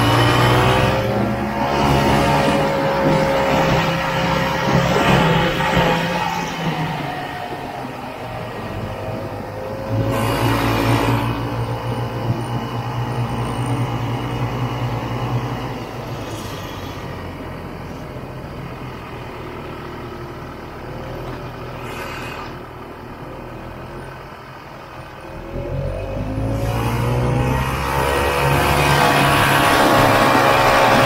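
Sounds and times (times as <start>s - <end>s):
snowmobile engine running: 0.0s - 17.4s, 26.4s - 31.0s.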